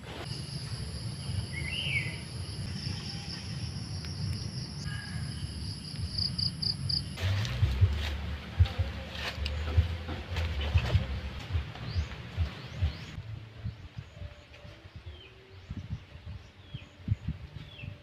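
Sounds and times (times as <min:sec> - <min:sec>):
low rumble: 0:00.0 - 0:18.0
high-pitched insect trill: 0:00.3 - 0:07.2
bird chirp: 0:11.5 - 0:18.0.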